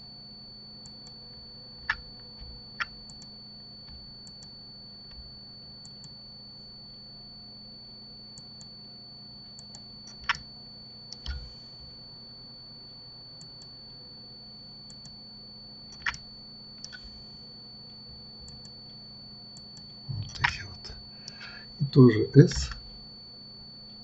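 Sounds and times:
faint high whine: 0.0 - 24.0
steady low hum: 0.0 - 24.0
computer mouse clicks: 1.8 - 2.0, 2.8 - 3.3, 9.6 - 10.4, 11.1 - 11.5, 15.9 - 16.2, 16.8 - 17.1, 18.4 - 18.8
keyboard clicks: 1.8 - 2.0, 9.6 - 10.4, 11.1 - 11.4, 15.9 - 16.2, 19.6 - 21.5.

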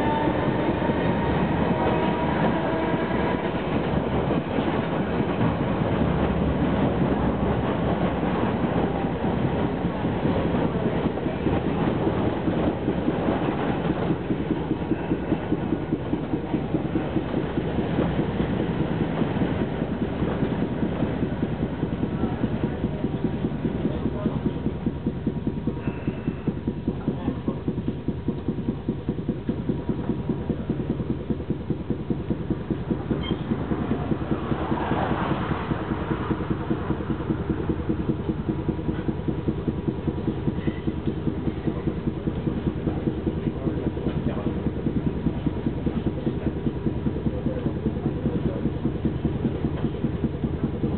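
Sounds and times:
tram wheels rumbling on rails: 0.0 - 50.9
air compressor chugging: 22.9 - 50.9.

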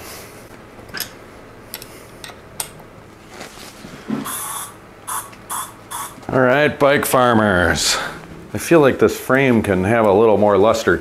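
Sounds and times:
aerosol can spraying: 4.2 - 6.2.

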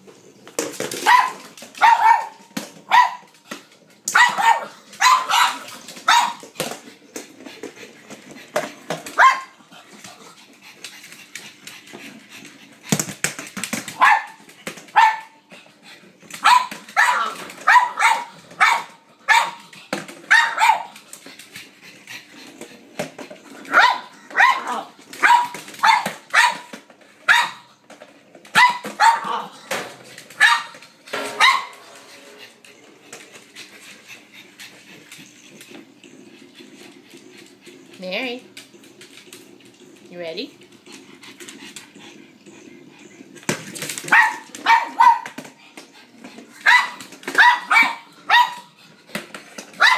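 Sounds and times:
dog barking: 1.1 - 3.3, 4.2 - 6.4, 9.2 - 9.5, 14.0 - 14.4, 15.0 - 15.4, 16.4 - 19.6, 20.3 - 20.9, 23.7 - 26.7, 27.3 - 27.7, 28.6 - 29.5, 30.4 - 30.7, 44.1 - 45.3, 46.6 - 48.7.

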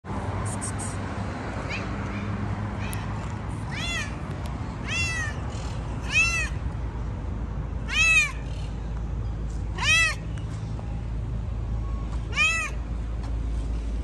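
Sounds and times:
cat meowing: 1.7 - 4.2, 4.8 - 5.4, 6.0 - 6.6, 7.9 - 8.4, 9.8 - 10.2, 12.3 - 12.8.

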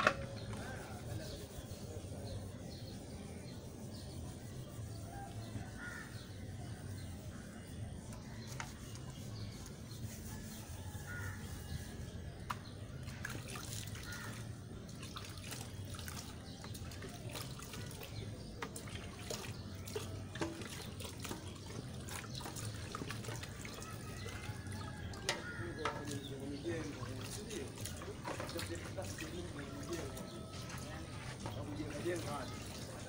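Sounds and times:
water splashing and dripping: 12.4 - 33.0.

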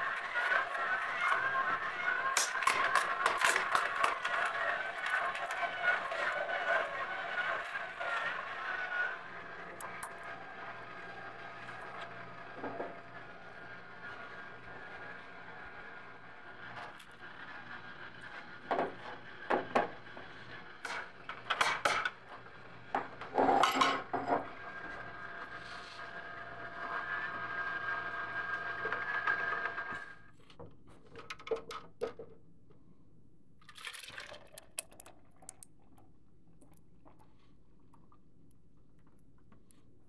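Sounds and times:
juicer motor whine: 0.0 - 21.5, 22.2 - 30.3.

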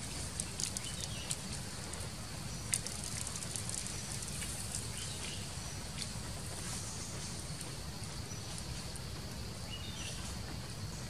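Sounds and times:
wood fire crackling: 0.0 - 6.2.

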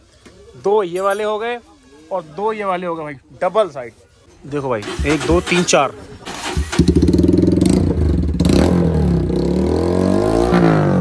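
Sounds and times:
motorcycle engine revving: 4.8 - 11.0.

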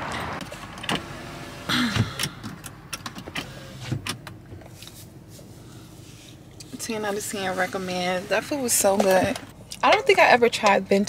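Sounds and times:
clicks and knocks in car cabin: 1.7 - 4.8, 8.8 - 10.0.

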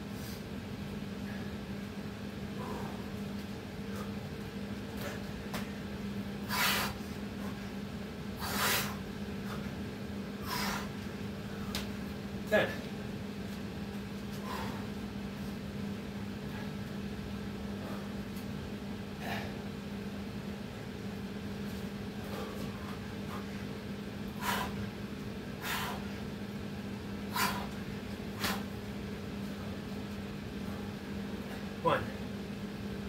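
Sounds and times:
steady low hum: 0.0 - 33.0
man's forceful exhales: 27.3 - 27.8.

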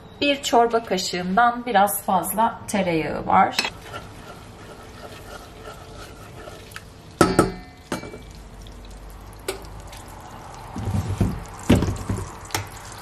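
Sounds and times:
melting butter bubbling: 4.0 - 13.0
wooden spoon knocking on metal pot: 7.2 - 8.3.

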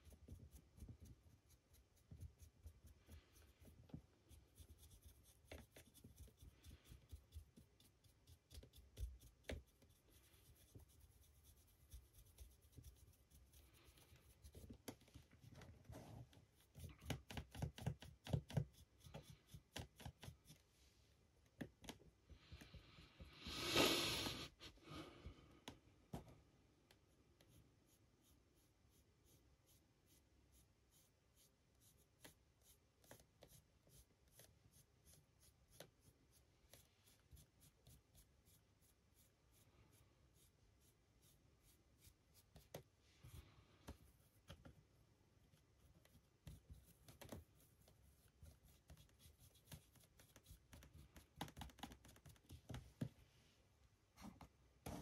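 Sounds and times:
paintbrush scratching: 0.0 - 20.9, 27.0 - 52.6
paintbrush tapping: 16.6 - 20.6.

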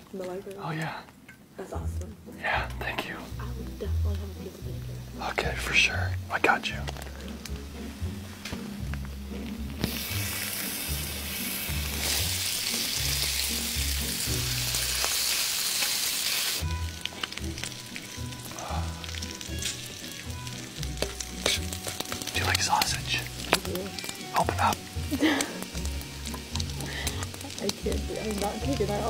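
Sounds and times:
bacon sizzling on a griddle: 2.5 - 29.0
low music beat: 16.6 - 29.0.

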